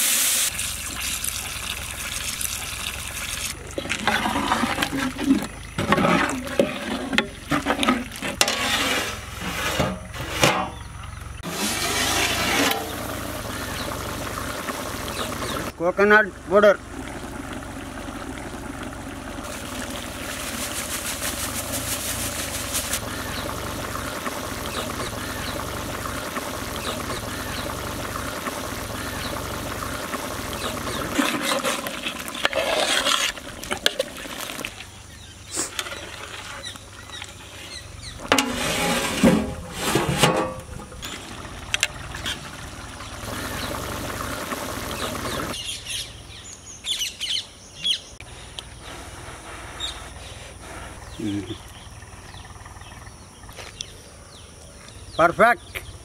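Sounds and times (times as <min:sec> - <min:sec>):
curry hissing in a pot: 0:00.0 - 0:07.2, 0:11.4 - 0:15.8, 0:19.2 - 0:36.8, 0:42.2 - 0:45.6
ladle stirring a pot: 0:03.7 - 0:10.7, 0:11.5 - 0:13.1, 0:30.6 - 0:34.7, 0:38.2 - 0:41.2.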